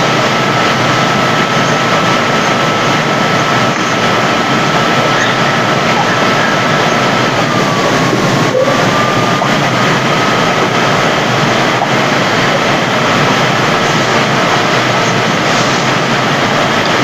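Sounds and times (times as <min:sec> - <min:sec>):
loud rushing static noise: 0:00.0 - 0:17.0
faint steady whistle: 0:05.1 - 0:10.0.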